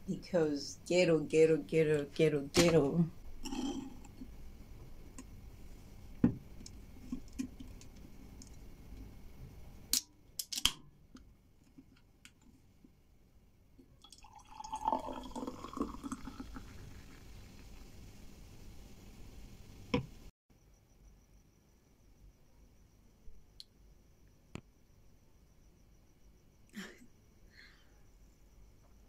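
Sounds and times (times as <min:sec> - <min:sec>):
fizzy drink pouring into glass: 0:14.0 - 0:18.1.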